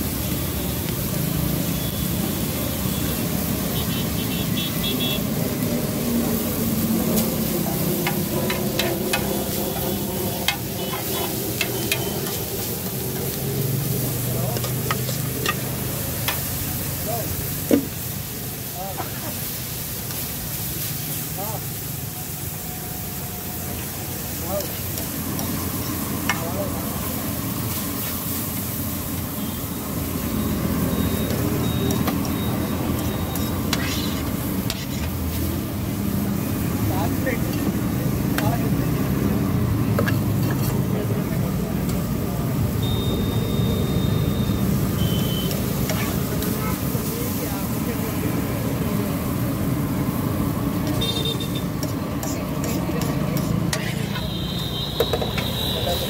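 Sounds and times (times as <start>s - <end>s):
street traffic rumble: 0.0s - 56.0s
vegetables sizzling on a griddle: 0.0s - 56.0s
metal spatula scraping a griddle: 8.0s - 13.4s, 32.9s - 35.6s, 40.0s - 40.9s, 45.5s - 46.8s, 50.8s - 54.4s.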